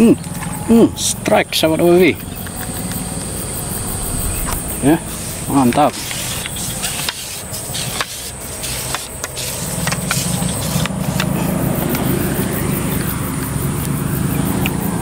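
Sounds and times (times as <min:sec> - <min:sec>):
vehicle engine hum: 0:00.0 - 0:15.0
high insect buzz: 0:01.8 - 0:15.0.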